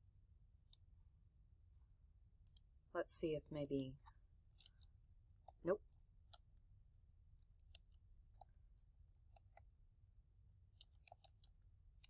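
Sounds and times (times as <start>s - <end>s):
computer mouse clicks: 2.4s - 2.7s, 7.4s - 9.7s, 10.5s - 12.0s.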